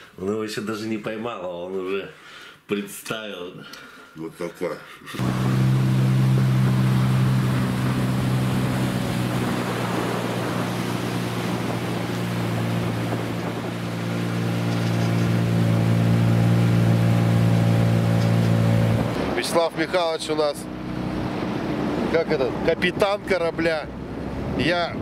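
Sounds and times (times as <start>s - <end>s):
boat motor running: 5.2s - 24.6s
water rushing around hull: 5.2s - 25.0s.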